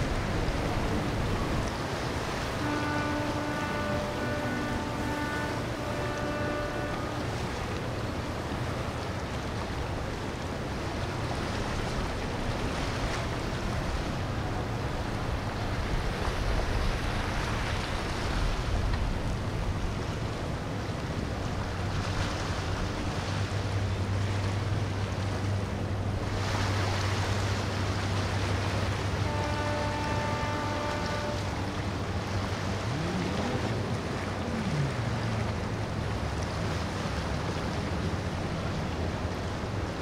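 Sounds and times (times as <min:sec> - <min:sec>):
wind noise: 0:00.0 - 0:02.7
boat engine hum: 0:00.0 - 0:40.0
water wash: 0:00.0 - 0:40.0.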